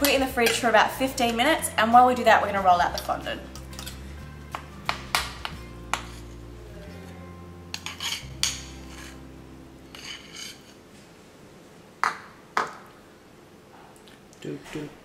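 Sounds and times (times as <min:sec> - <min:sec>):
spatula clinking on ceramic bowl: 0:00.0 - 0:00.8, 0:02.9 - 0:04.0, 0:07.7 - 0:09.2
soft background music: 0:00.0 - 0:10.9.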